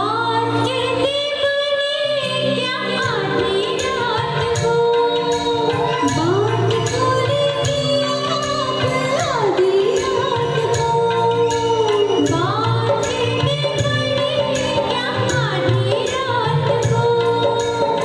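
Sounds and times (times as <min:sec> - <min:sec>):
amplified backing music: 0:00.0 - 0:18.0
women singing into microphones: 0:00.0 - 0:18.0.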